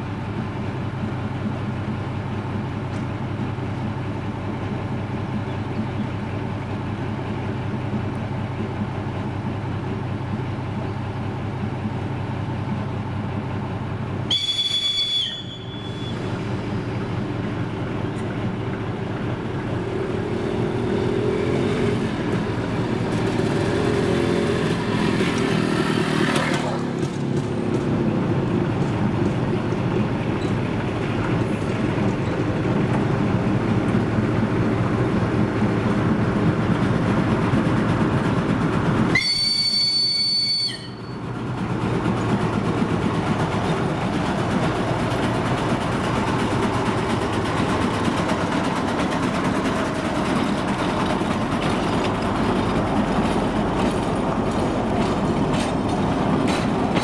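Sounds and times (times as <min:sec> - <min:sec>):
diesel locomotive engine: 0:00.0 - 0:57.0
locomotive horn blast: 0:14.3 - 0:16.3, 0:39.1 - 0:41.1
wheels clicking over rail joints: 0:22.0 - 0:57.0.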